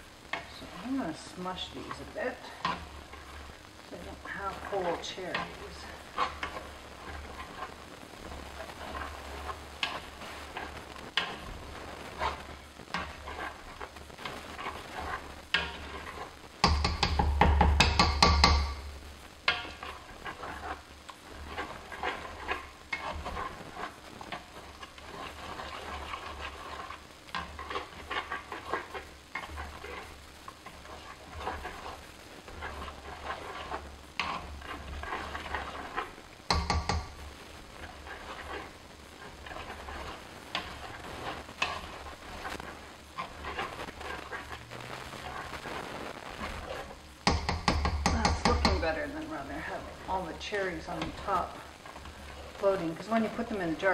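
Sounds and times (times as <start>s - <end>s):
spoon mashing fruit in pot: 0.3s - 7.8s, 8.4s - 44.6s, 46.6s - 53.9s.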